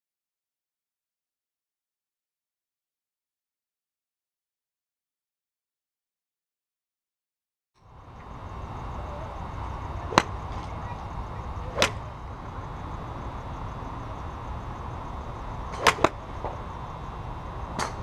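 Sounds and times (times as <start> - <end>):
steady background noise: 7.8 - 18.0
golf clubs striking balls: 9.6 - 13.0, 15.5 - 16.8, 17.7 - 18.0.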